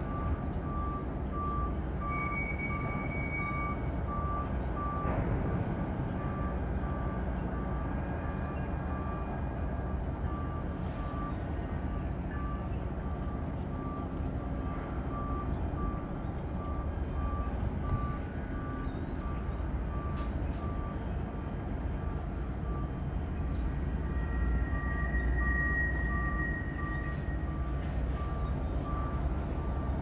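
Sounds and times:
short electronic beeps: 0.0 - 5.1.

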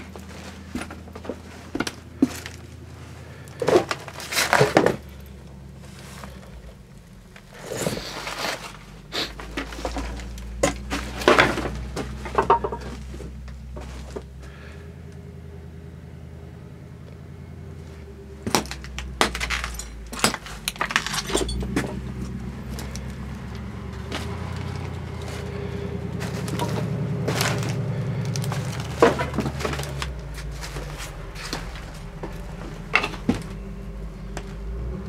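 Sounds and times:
footsteps crunching over debris: 0.0 - 14.8, 17.8 - 34.7
steady low hum: 0.0 - 35.0
scattered clinks: 19.3 - 21.9.

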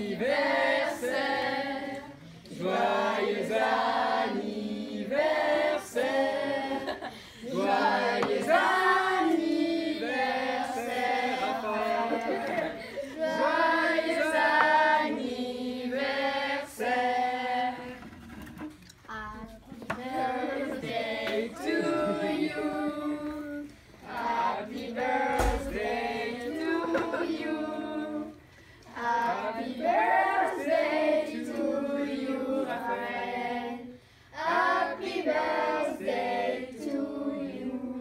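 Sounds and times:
children singing together: 0.0 - 18.1, 19.8 - 38.0
low thump: 25.3 - 25.9.

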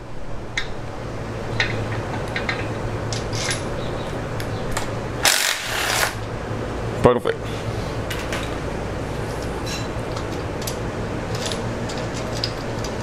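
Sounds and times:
cordless power ratchet running: 5.2 - 6.2.

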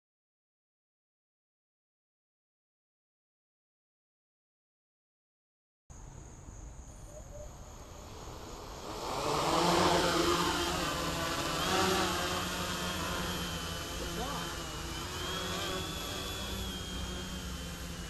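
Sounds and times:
quadcopter motors buzzing whine: 6.0 - 18.0.

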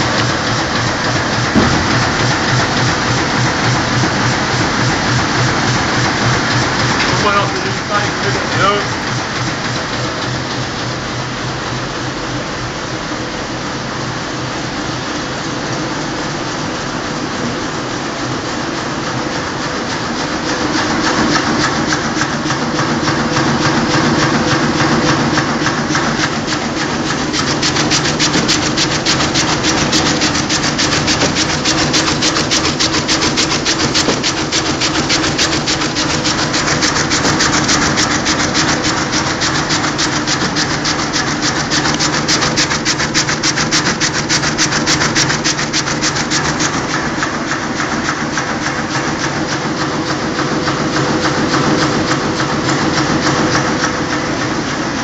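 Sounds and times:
printing press clatter: 0.0 - 55.0
rapid even ticking: 26.2 - 46.8.

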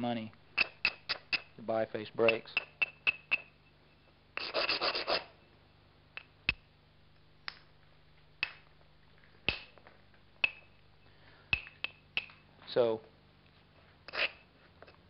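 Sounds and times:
stone scraping clicks: 0.6 - 1.5
sharp stone on glass clicks: 0.6 - 1.6.

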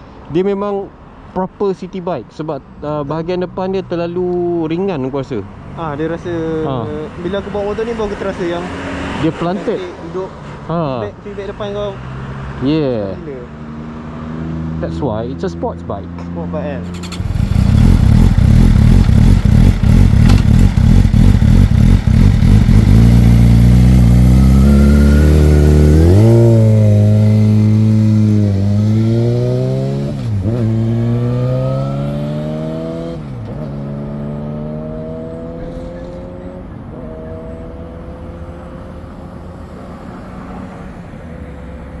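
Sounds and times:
motorcycle engine accelerating: 16.8 - 39.5.

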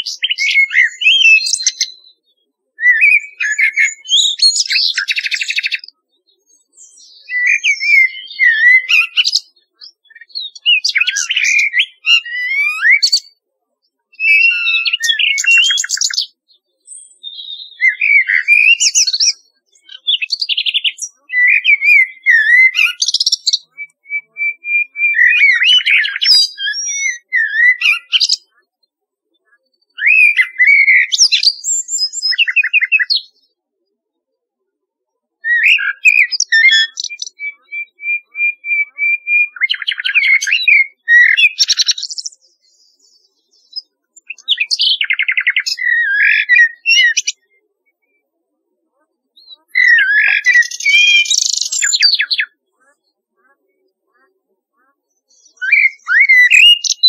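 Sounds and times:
songbirds warbling and trilling: 0.0 - 57.0.

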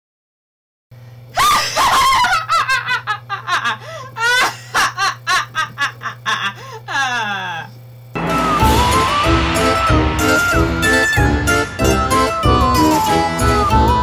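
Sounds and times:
person laughing hard: 1.4 - 7.7
steady low hum: 3.0 - 14.0.

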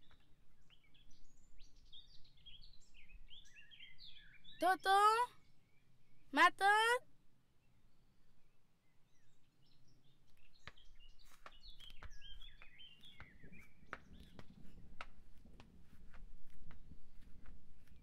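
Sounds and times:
faint bird chirps: 0.0 - 6.5, 7.6 - 14.4.

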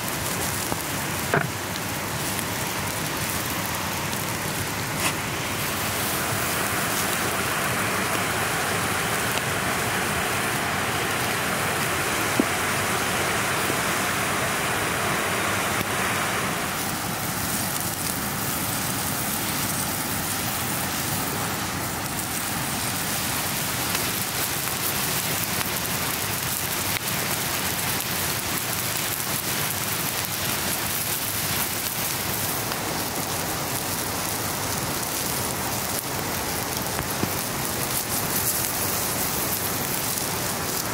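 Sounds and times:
chicken sizzling on a grill: 0.0 - 40.9
wood fire crackling: 0.0 - 40.9
sharp pop from fire: 1.3 - 1.6.

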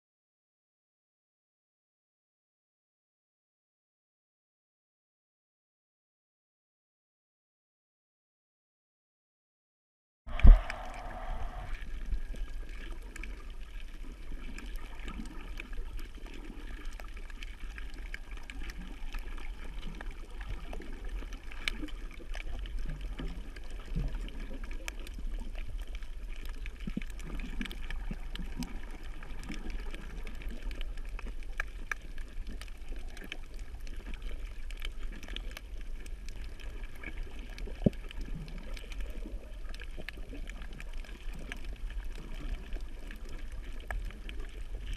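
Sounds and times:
faint clicks and crackles: 10.3 - 44.9
muffled underwater rumble: 10.3 - 44.9.

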